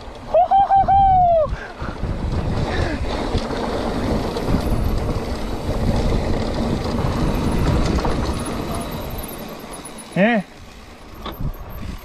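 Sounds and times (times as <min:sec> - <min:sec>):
bike tyres rolling over rock: 0:00.0 - 0:12.0
wind on microphone: 0:00.7 - 0:09.3, 0:11.2 - 0:12.0.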